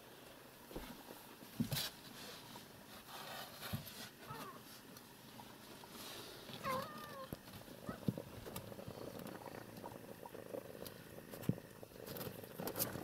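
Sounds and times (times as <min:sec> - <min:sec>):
cat meowing: 0:06.6 - 0:08.1
cat purring: 0:06.6 - 0:13.0.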